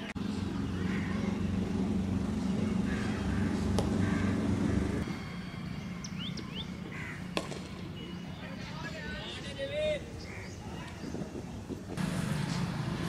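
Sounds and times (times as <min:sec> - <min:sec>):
vehicle engine humming: 0:00.0 - 0:08.3, 0:11.7 - 0:13.0
cricket bat striking ball: 0:03.7 - 0:04.0.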